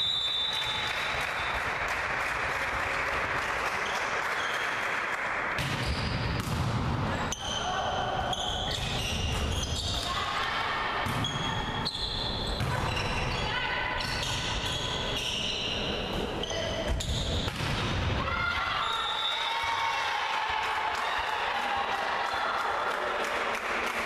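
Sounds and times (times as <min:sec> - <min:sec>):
volleyball struck with slaps: 0:05.5 - 0:07.0, 0:17.0 - 0:18.2
shoes squeaking on court floor: 0:07.2 - 0:10.1, 0:11.1 - 0:17.5.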